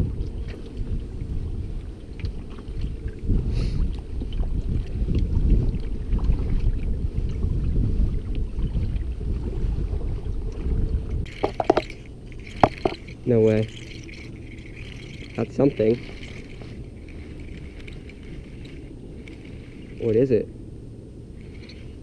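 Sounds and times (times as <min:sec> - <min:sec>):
wind rumble on microphone: 0:00.0 - 0:22.0
kayak paddle strokes: 0:11.3 - 0:20.3.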